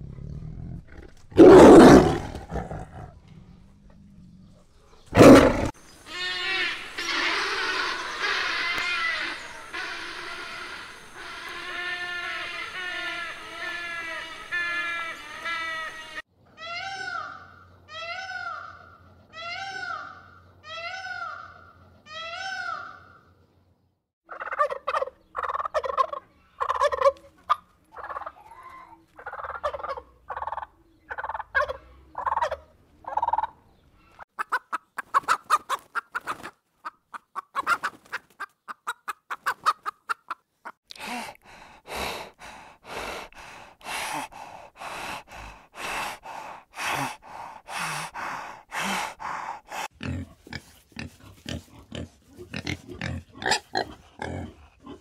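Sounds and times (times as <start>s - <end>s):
peafowl wailing cries: 6.0s - 23.1s
chickens clucking: 24.3s - 28.6s, 29.2s - 40.8s.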